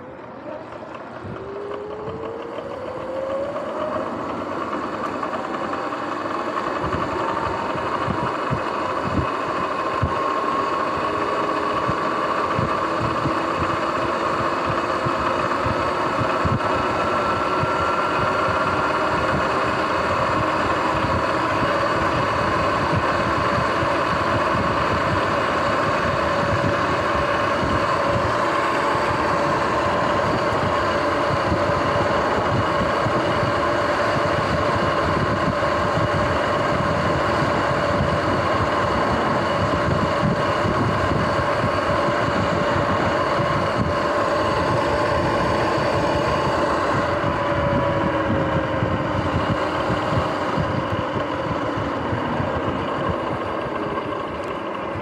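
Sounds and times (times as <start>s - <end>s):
electric motor whining: 0.0s - 55.0s
tyre and wind noise: 15.6s - 55.0s.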